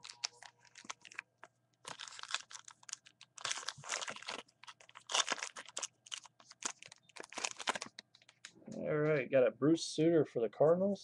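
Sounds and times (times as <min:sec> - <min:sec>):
plastic wrapper crinkling and tearing: 0:00.0 - 0:08.6.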